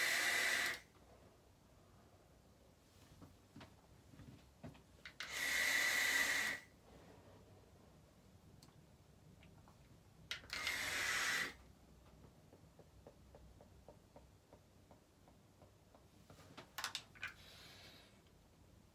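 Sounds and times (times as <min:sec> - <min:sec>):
hissing vape breath: 0:17.3 - 0:18.2.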